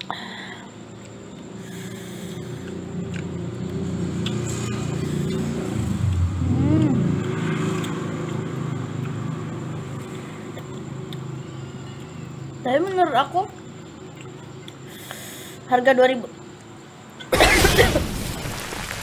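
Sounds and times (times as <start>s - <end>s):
vehicle engine passing by: 1.8s - 12.6s.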